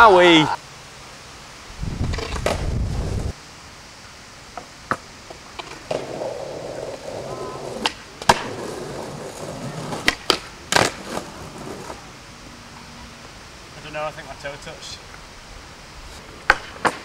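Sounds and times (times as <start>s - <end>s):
skateboard wheels rolling: 1.8s - 3.4s, 4.5s - 13.4s, 15.9s - 17.0s
skateboard clacks: 4.9s - 12.0s, 16.4s - 17.0s.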